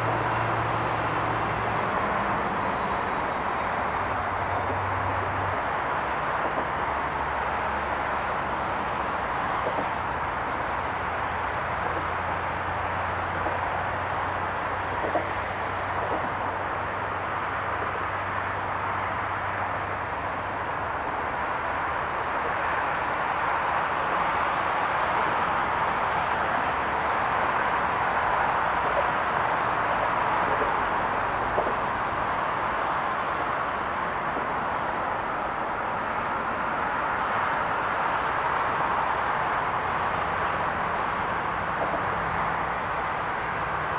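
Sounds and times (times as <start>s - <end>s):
distant city traffic: 0.0s - 43.9s.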